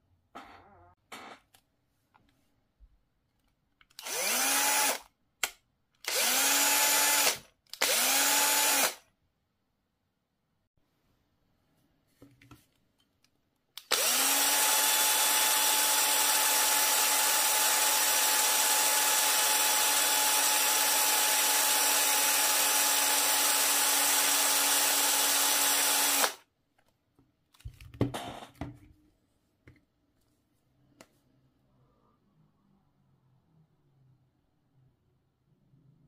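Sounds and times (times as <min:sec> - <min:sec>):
cordless drill whining: 0:04.0 - 0:05.1, 0:06.0 - 0:09.0, 0:13.8 - 0:26.4.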